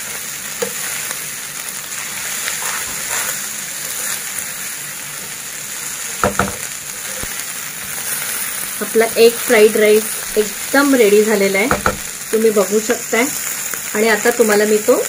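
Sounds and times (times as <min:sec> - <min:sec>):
fried rice sizzling: 0:00.0 - 0:15.0
spatula stirring rice: 0:01.9 - 0:08.6
spatula knocking against pan: 0:06.2 - 0:06.7, 0:11.7 - 0:12.2.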